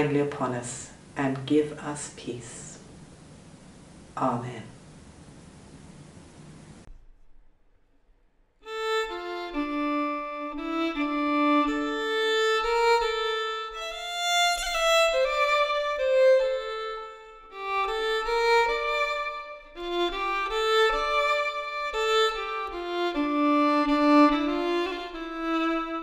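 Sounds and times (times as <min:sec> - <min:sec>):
slow violin melody: 0:08.6 - 0:26.0.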